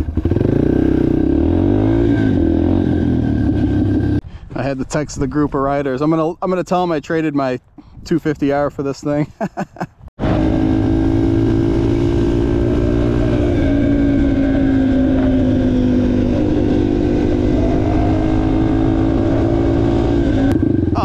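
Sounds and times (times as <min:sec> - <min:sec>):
dirt bike engine running: 0:00.0 - 0:04.2, 0:10.2 - 0:21.0.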